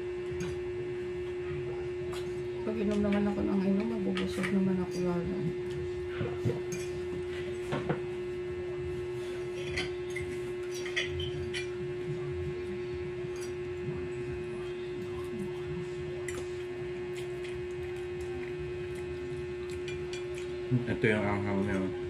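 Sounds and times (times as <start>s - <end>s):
steady hum: 0.0s - 22.0s
forks clicking on plates: 9.6s - 11.8s
noodle eating noises: 14.5s - 20.9s.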